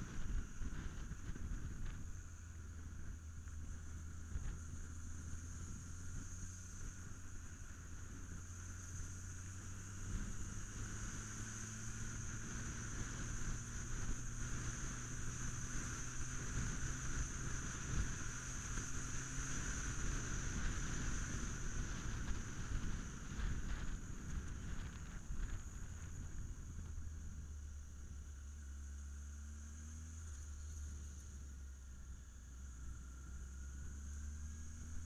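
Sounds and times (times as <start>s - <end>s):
vehicle engine hum: 0.0s - 35.0s
wind on microphone: 12.0s - 28.2s.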